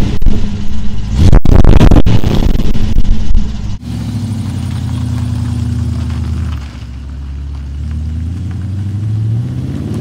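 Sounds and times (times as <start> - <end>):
engine pulling away under throttle: 3.8 - 10.0.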